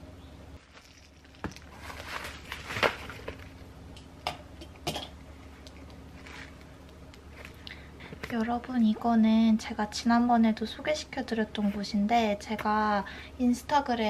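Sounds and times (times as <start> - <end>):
packaging crinkling: 0.6 - 3.6.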